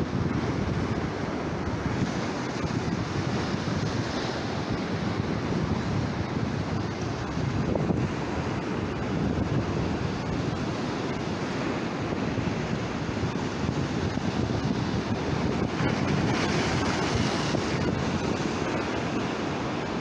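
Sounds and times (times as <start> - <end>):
wind buffeting microphone: 0.0 - 20.0
surf breaking against rocks: 13.2 - 20.0.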